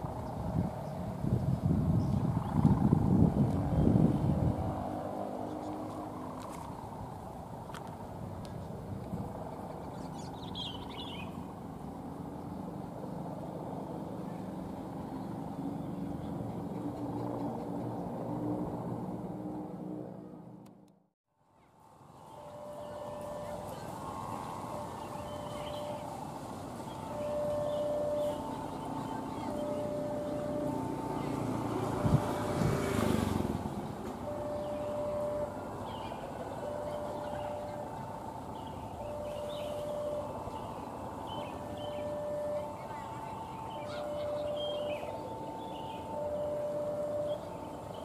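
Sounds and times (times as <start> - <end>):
diesel locomotive engine drone: 0.0 - 48.0
bird chirping: 9.5 - 11.5, 22.2 - 33.0, 33.8 - 48.0
two-tone electronic warning signal: 22.2 - 48.0.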